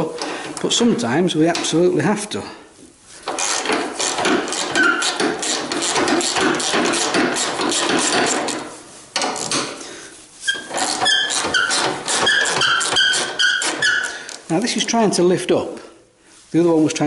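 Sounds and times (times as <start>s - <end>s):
ratchet clicking rapidly: 3.3s - 8.6s
short high squeaks: 3.4s - 6.4s, 10.4s - 14.3s.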